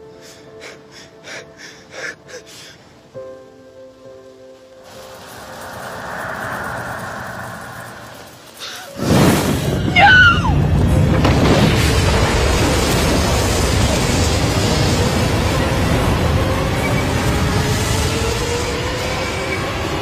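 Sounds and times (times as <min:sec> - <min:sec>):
loud blast with heavy rumble: 0:09.0 - 0:17.9
woman screaming: 0:09.9 - 0:10.6.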